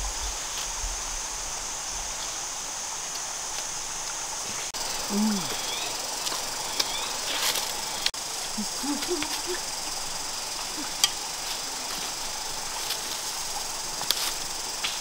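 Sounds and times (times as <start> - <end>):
flowing stream: 0.0 - 15.0
high insect drone: 0.0 - 15.0.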